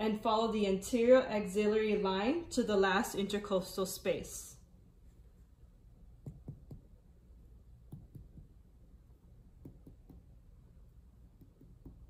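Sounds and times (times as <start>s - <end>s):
dull finger taps on abdomen: 6.2s - 6.9s, 7.9s - 8.5s, 9.6s - 10.3s, 11.4s - 12.0s.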